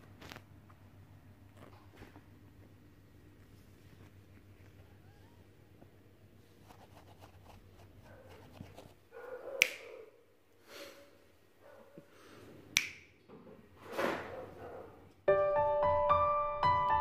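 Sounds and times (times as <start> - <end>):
finger snaps: 9.6 - 9.9, 12.7 - 13.1.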